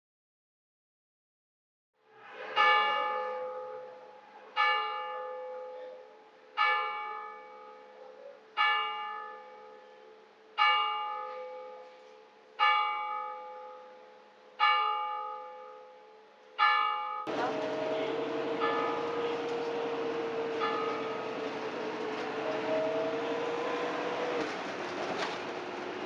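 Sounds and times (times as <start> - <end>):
bell tolling: 17.3 - 24.4.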